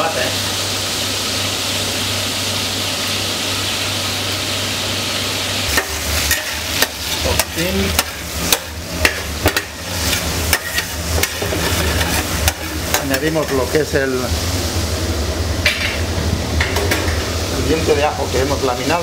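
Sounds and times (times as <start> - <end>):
seafood sizzling in hot oil: 0.0 - 19.0
metal spoon scraping a pan: 5.7 - 13.8.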